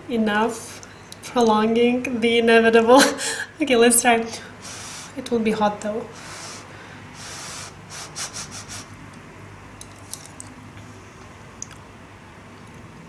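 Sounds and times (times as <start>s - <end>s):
puffs of breath: 4.5s - 5.2s, 6.1s - 9.0s.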